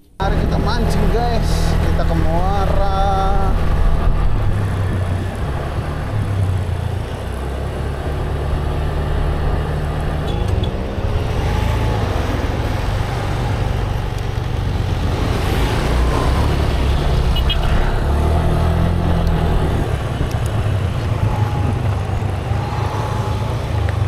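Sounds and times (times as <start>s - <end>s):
passing vehicle engine: 0.2s - 24.0s
motorcycle engine running: 18.7s - 24.0s.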